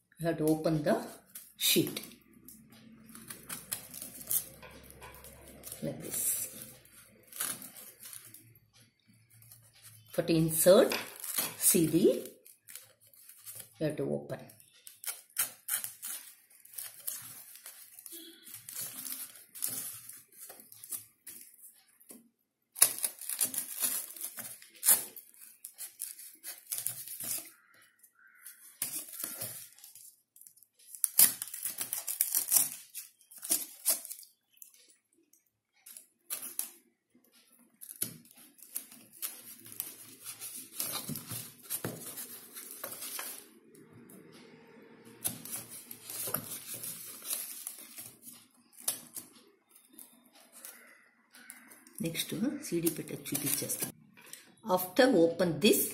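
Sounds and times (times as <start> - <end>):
knife scraping paper: 3.0 - 8.4, 14.9 - 21.6, 22.8 - 27.7, 28.4 - 30.0, 37.9 - 43.5, 45.2 - 49.0
paper tearing and crinkling: 3.0 - 8.5, 14.8 - 21.6, 22.8 - 27.6, 28.5 - 30.1, 30.9 - 34.5, 37.8 - 43.5, 45.2 - 49.3.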